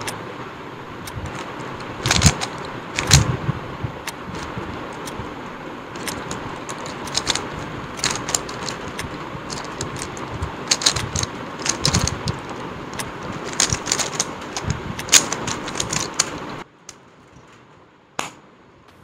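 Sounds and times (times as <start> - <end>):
puzzle cube clicking: 1.0 - 3.4, 4.1 - 16.6.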